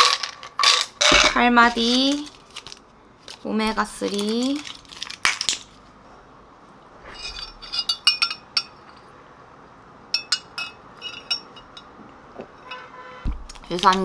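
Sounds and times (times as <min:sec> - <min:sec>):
blister pack crackle: 0:01.7 - 0:05.8.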